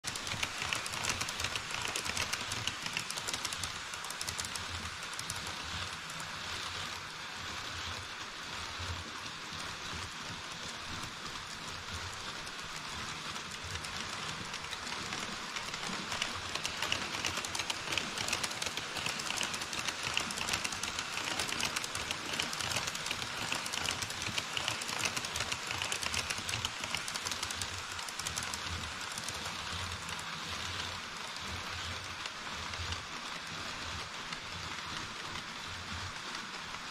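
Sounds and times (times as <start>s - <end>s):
model train wheels rushing on rails: 0.0s - 36.9s
rapid fine clicking: 0.1s - 6.3s, 13.0s - 30.8s.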